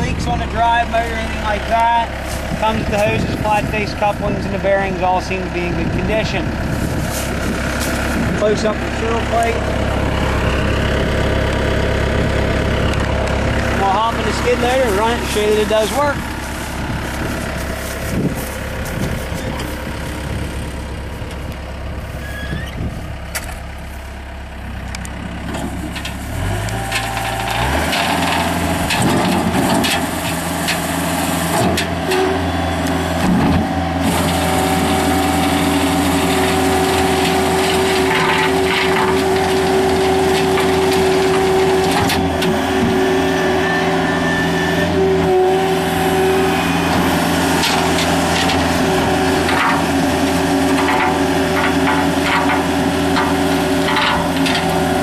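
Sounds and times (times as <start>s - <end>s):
rake scraping dirt and stones: 0.0s - 4.3s, 6.6s - 9.5s, 13.6s - 20.4s, 25.4s - 32.4s, 34.0s - 55.0s
loader engine idling and revving: 0.0s - 55.0s.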